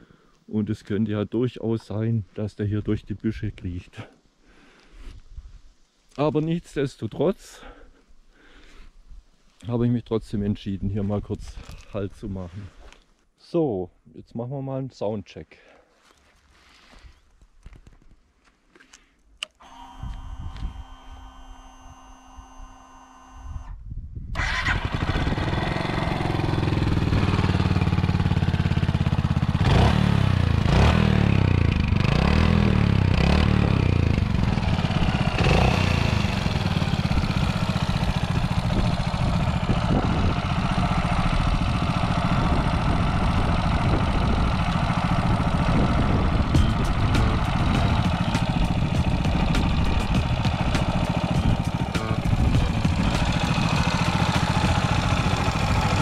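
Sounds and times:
motorcycle engine revving and idling: 24.4s - 56.0s.

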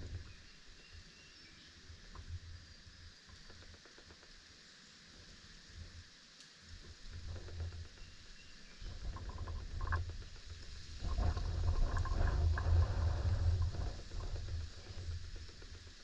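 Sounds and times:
wind buffeting microphone: 0.0s - 0.5s, 6.9s - 16.0s
light scrapes and clicks: 6.8s - 16.0s.

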